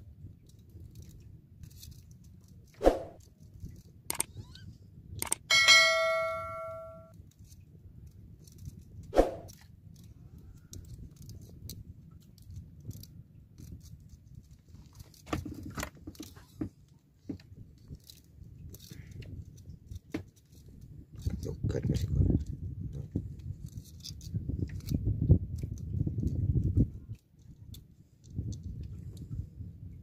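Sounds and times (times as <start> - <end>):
ringing metal clang: 5.5 - 7.1
fishing gear knocks and clicks: 7.3 - 29.3.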